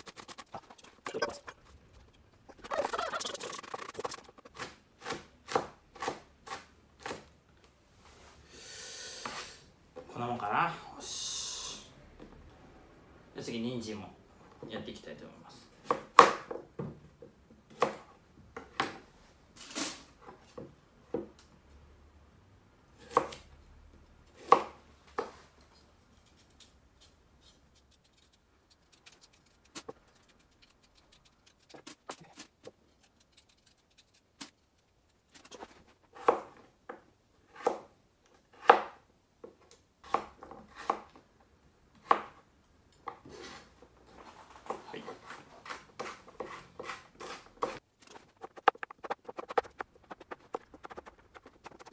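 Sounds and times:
knife chopping on cutting board: 24.4s - 25.4s, 37.5s - 37.9s, 38.5s - 39.0s, 40.0s - 41.1s, 45.2s - 51.9s.

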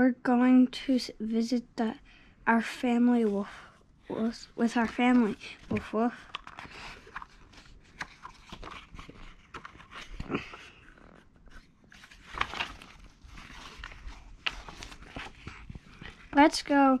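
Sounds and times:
book pages rustling: 4.6s - 16.9s
page turning: 4.7s - 16.4s.

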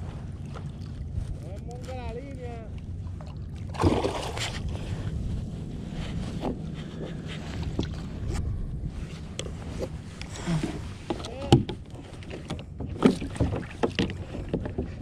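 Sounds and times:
wind rumble on microphone: 0.0s - 15.0s
water splashing: 2.7s - 5.0s
gear knocking on kayak hull: 11.1s - 15.0s.

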